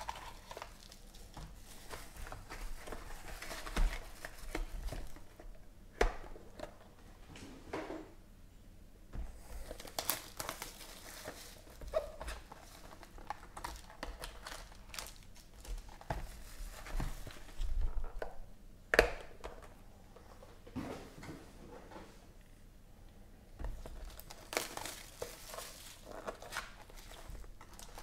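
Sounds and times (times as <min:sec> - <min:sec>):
foil packs crinkling: 0:00.0 - 0:05.4, 0:09.4 - 0:17.6, 0:23.7 - 0:28.0.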